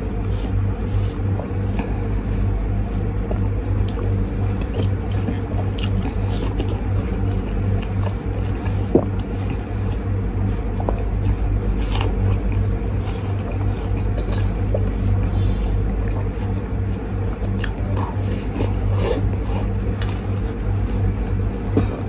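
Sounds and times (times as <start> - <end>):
biting and slurping watermelon: 0.0 - 22.0
steady low hum: 0.0 - 22.0
squelching mouth sounds: 0.4 - 16.6.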